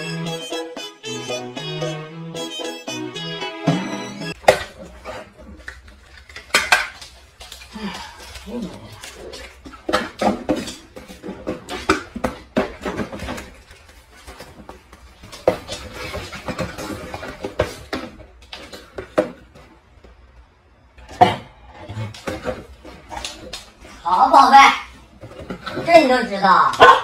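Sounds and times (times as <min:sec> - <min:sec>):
cardboard rustling and knocking: 0:09.6 - 0:19.8.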